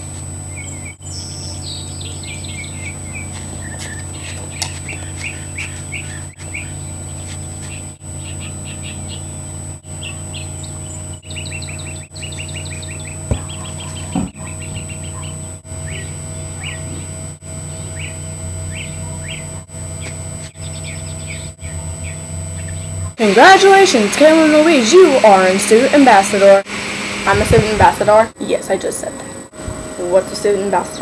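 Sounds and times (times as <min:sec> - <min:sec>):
steady low hum: 0:00.0 - 0:31.0
small birds chirping: 0:00.5 - 0:23.2
short low thumps: 0:13.2 - 0:14.3.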